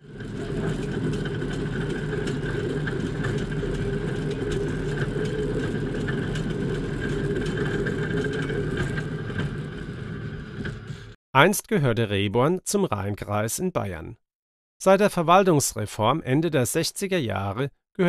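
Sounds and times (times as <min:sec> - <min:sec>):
steel wheels rolling on rails: 0:00.0 - 0:11.2.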